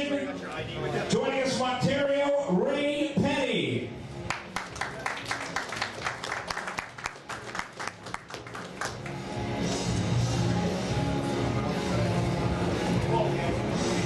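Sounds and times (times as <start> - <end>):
background music: 0.0 - 14.0
small audience clapping: 4.2 - 9.4.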